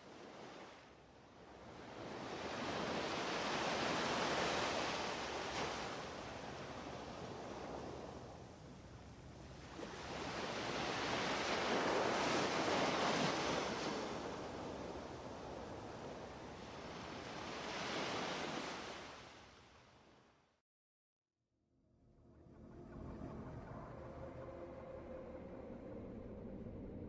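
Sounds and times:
ocean waves surf: 1.4 - 19.8.

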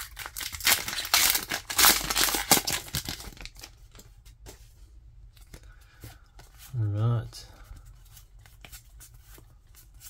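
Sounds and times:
foil wrapper crinkling and tearing: 0.0 - 3.8.

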